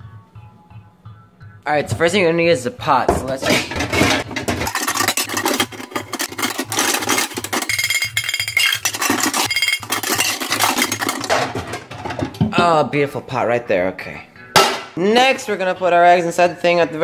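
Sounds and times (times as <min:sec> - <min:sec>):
metal pot clattering: 0:03.1 - 0:12.8.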